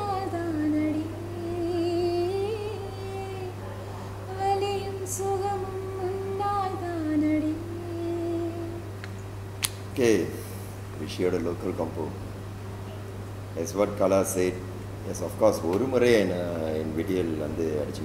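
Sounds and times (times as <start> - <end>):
woman singing with vibrato: 0.0 - 3.6, 4.2 - 8.9.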